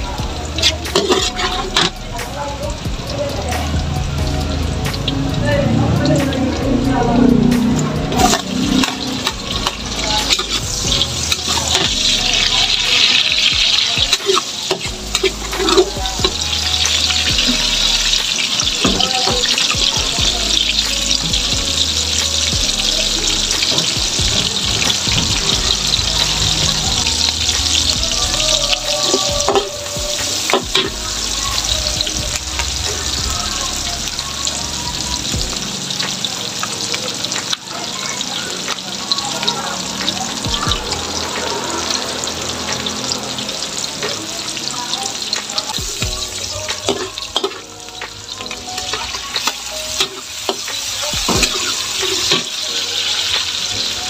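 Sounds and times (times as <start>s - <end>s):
onion sizzling in hot oil: 0.0s - 54.0s
metal spatula scraping wok: 0.5s - 2.2s, 7.3s - 19.8s.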